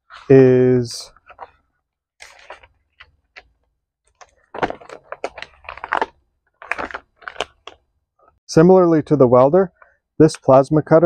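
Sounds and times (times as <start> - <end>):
hands handling small objects: 2.2 - 7.9.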